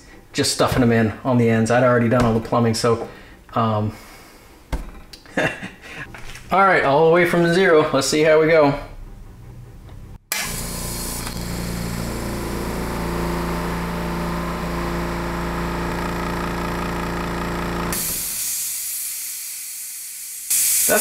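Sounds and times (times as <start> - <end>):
electric air compressor running: 10.3 - 21.0
air hissing: 17.9 - 21.0.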